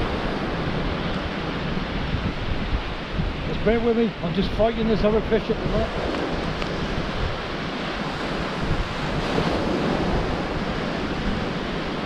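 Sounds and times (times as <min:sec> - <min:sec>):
surf washing onto beach: 0:00.0 - 0:12.0
wind rumbling on microphone: 0:00.0 - 0:12.0.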